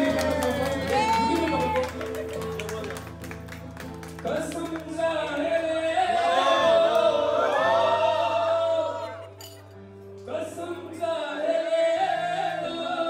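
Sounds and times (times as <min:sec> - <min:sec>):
group of people singing along: 0:05.9 - 0:09.3, 0:10.8 - 0:13.0.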